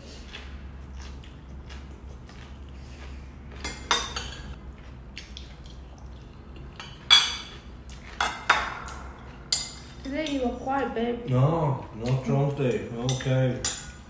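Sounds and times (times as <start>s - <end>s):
forks clinking and scraping on plates: 6.7s - 10.4s, 12.7s - 14.0s.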